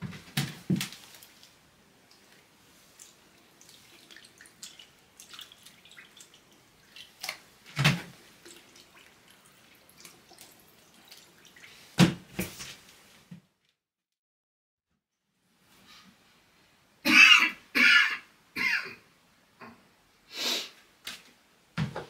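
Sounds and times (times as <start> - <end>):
water dripping and trickling: 1.0 - 12.0.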